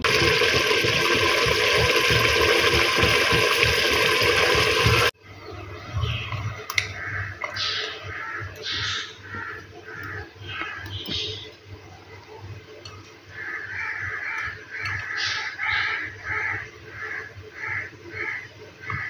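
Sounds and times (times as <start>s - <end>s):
gravy bubbling and sizzling: 0.0s - 5.2s.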